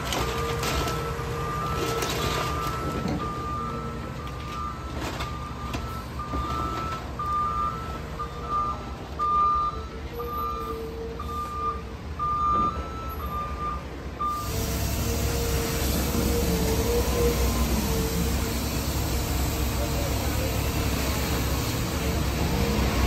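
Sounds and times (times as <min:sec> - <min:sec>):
diesel machinery running: 0:00.0 - 0:23.0
engine rumble and hiss: 0:00.0 - 0:23.0
backup alarm beeping: 0:00.2 - 0:14.6.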